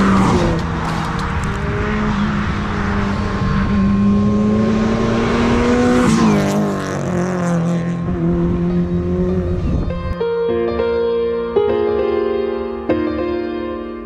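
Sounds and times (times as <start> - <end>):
car accelerating past: 0.0 - 10.1.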